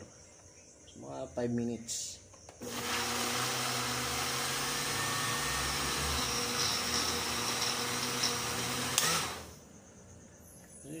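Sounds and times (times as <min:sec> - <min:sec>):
blender motor running: 0:02.6 - 0:09.6.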